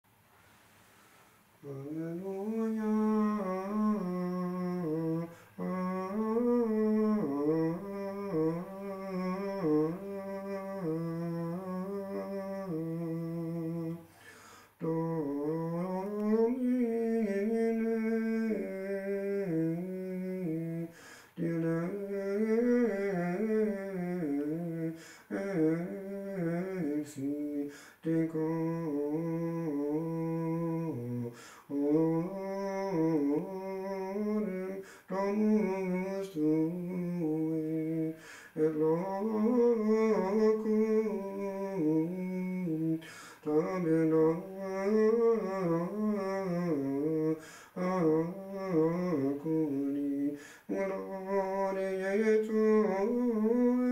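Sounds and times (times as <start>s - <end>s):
man singing chant unaccompanied: 1.6s - 53.9s.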